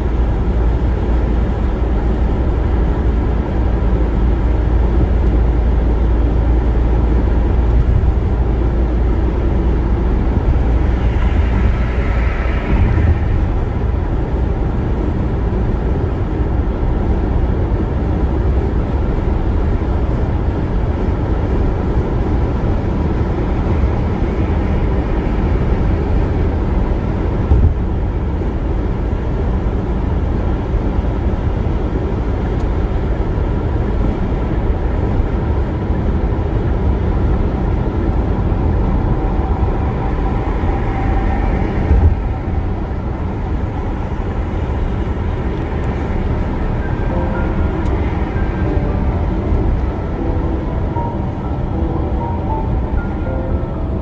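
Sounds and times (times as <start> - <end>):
road and tyre noise: 0.0 - 54.0.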